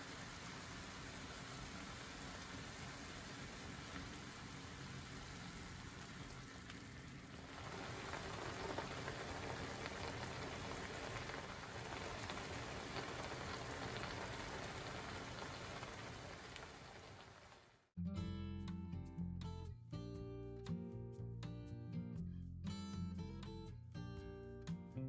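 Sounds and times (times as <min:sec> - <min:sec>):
broth simmering in a frying pan: 0:00.0 - 0:17.9.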